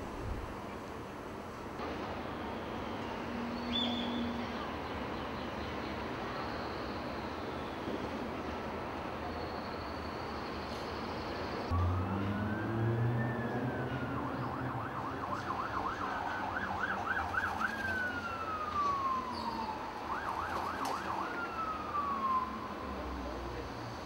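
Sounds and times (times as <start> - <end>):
low rumble of traffic: 0.0 - 24.0
emergency vehicle siren wailing: 11.7 - 23.7.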